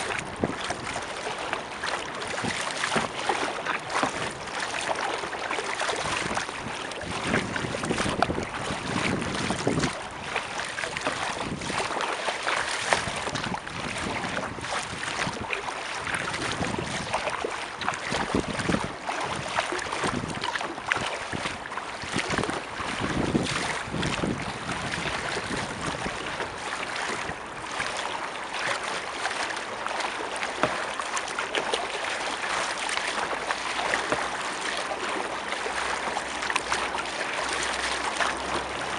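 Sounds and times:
wind buffeting microphone: 0.0 - 4.6, 5.7 - 12.0, 12.6 - 27.8
paddle splashing water: 0.0 - 38.9.

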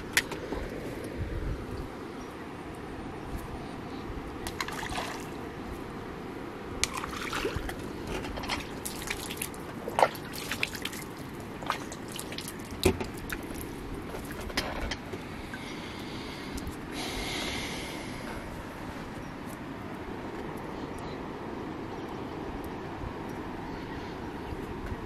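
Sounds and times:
small water splashes and plops: 4.4 - 5.4, 6.8 - 14.4.

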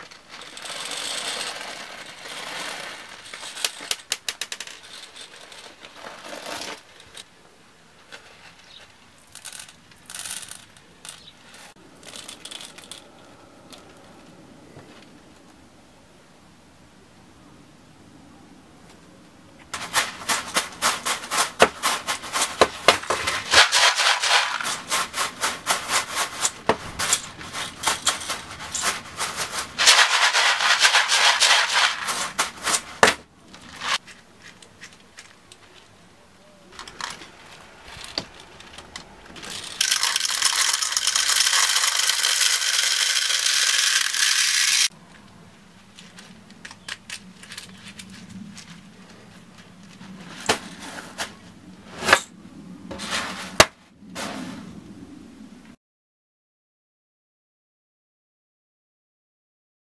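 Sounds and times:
muffled rattling in cloth bag: 19.8 - 34.6
bbs rattling in plastic bottle: 19.8 - 35.3, 36.8 - 44.9.

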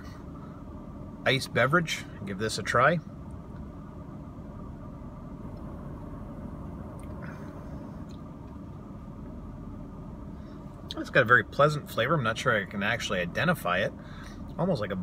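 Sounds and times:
car engine hum: 0.0 - 15.0.

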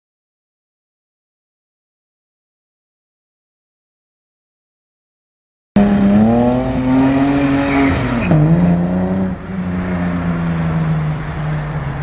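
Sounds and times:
car engine revving hard: 5.8 - 10.9.

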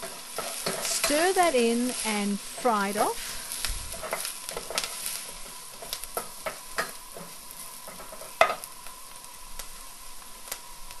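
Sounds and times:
onion sizzling in a pot: 0.0 - 11.0
wooden spoon scraping a pot: 2.6 - 8.6.

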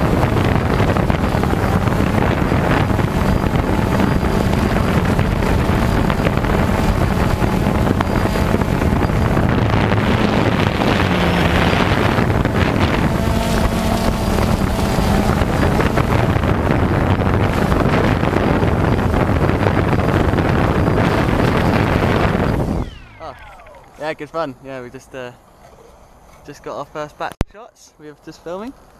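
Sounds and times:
wind on microphone: 0.0 - 24.7
drone propellers whirring: 0.0 - 26.6.

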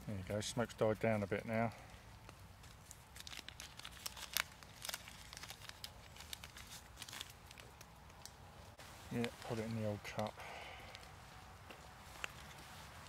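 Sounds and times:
wrapper crinkling and tearing: 2.1 - 8.4, 12.1 - 13.0.

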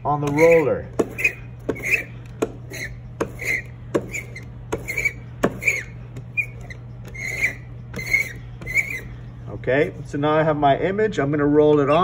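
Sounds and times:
ink roller rolling on plexiglass: 0.3 - 9.1.

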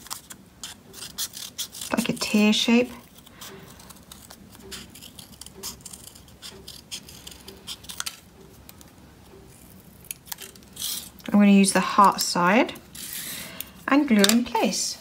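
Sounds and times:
scissors snipping paper: 0.0 - 11.3.

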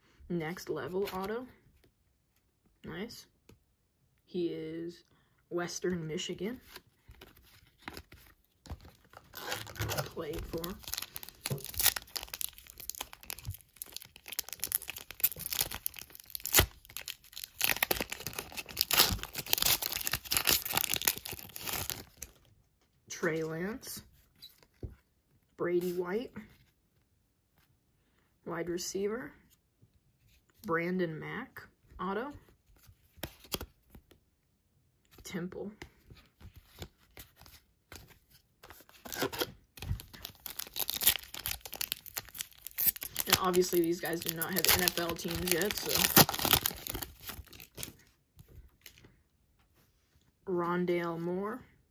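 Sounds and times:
wrapper crackling being torn open: 9.1 - 22.4, 39.0 - 48.0.

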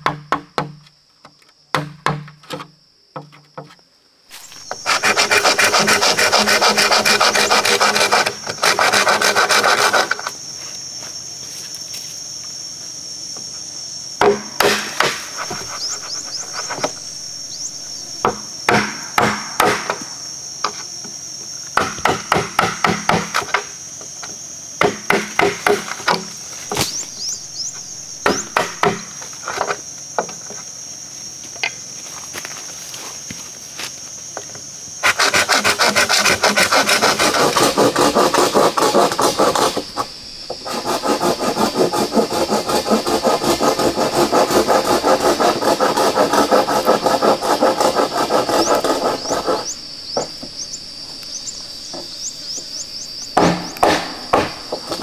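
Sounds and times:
hand saw cutting bamboo: 4.3 - 10.4, 14.3 - 20.0, 24.8 - 29.1, 35.0 - 50.3, 53.4 - 55.0.

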